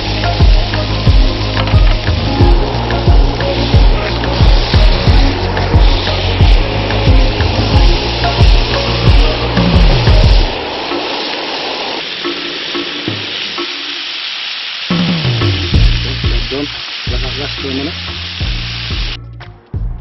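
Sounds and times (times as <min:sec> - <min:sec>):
steak sizzling in a pan: 0:00.0 - 0:19.2
music: 0:00.0 - 0:20.0.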